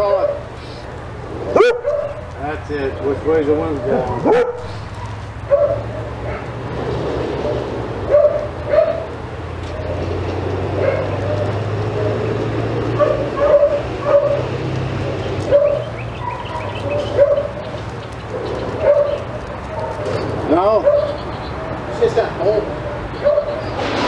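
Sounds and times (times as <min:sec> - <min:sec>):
dog barking and yipping: 0:01.5 - 0:02.4, 0:03.6 - 0:06.6, 0:07.4 - 0:10.0, 0:10.7 - 0:21.9, 0:22.8 - 0:23.9.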